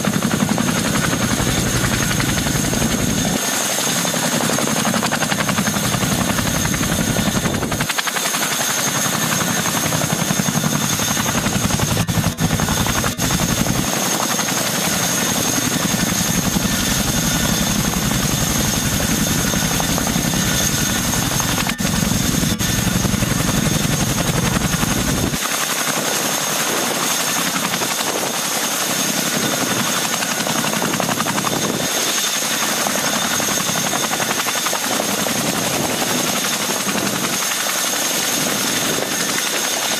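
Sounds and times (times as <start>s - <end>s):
helicopter rotor noise: 0.0s - 39.9s
turbine whine: 5.1s - 25.4s.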